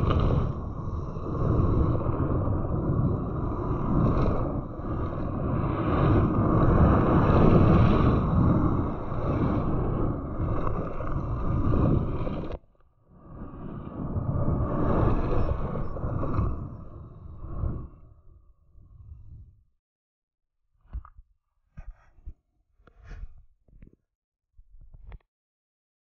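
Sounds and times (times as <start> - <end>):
wind rushing over microphone: 0.0 - 19.7.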